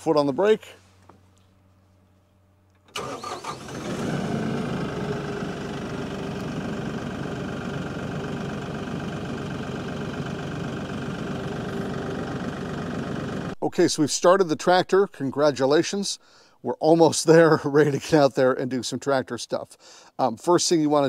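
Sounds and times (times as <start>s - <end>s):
engine starter cranking: 2.8s - 5.4s
diesel engine idling: 3.0s - 14.8s.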